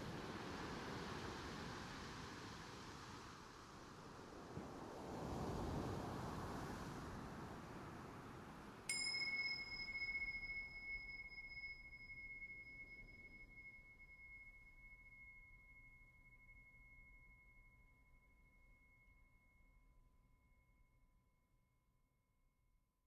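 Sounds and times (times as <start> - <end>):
soft hiss: 0.0 - 17.6
struck metal chime ringing: 8.9 - 18.2.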